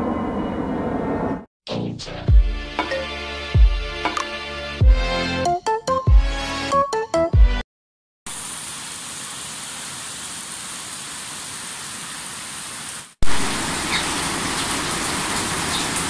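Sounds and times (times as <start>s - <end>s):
music: 1.7s - 7.7s
heavy rain on road: 8.3s - 16.0s.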